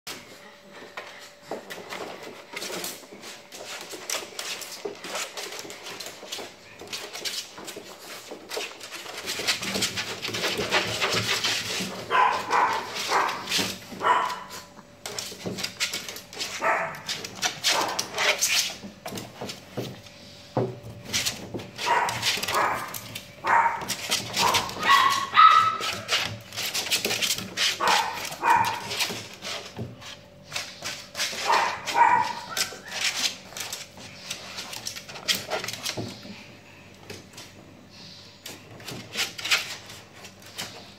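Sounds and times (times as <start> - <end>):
scuffling and rustling: 0.1 - 40.9
small dogs yipping and whining: 24.4 - 26.2, 31.4 - 33.4.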